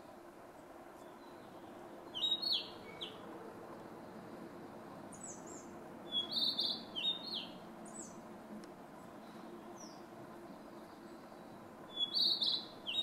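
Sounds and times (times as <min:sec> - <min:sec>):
bird singing clear notes: 0:01.0 - 0:03.2, 0:05.2 - 0:08.2, 0:11.9 - 0:13.0.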